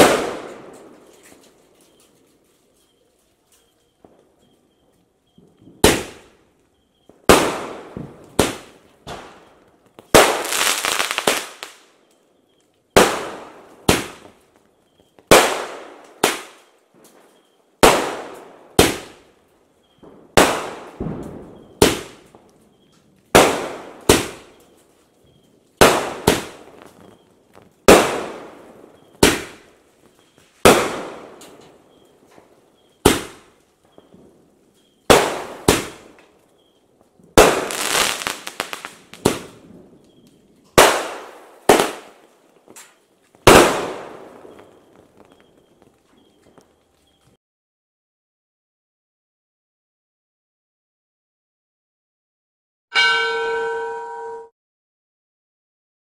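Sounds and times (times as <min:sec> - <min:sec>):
firework bangs: 0:00.0 - 0:01.4, 0:05.4 - 0:06.4, 0:07.1 - 0:11.8, 0:12.9 - 0:16.7, 0:17.8 - 0:24.8, 0:25.8 - 0:46.8
firework crackling burst: 0:25.8 - 0:29.7, 0:37.4 - 0:39.8.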